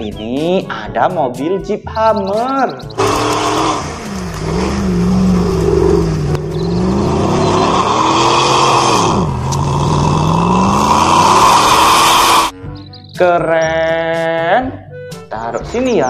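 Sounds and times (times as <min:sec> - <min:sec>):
engine revving under load: 0:02.8 - 0:12.6.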